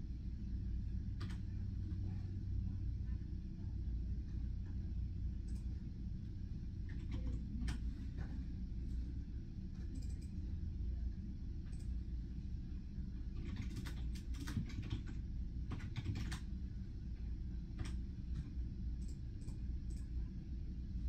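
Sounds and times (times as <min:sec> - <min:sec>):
low room hum: 0:00.0 - 0:21.0
keyboard typing clicks: 0:01.2 - 0:01.4, 0:06.9 - 0:07.8, 0:09.8 - 0:10.4, 0:13.4 - 0:16.5, 0:17.8 - 0:18.0.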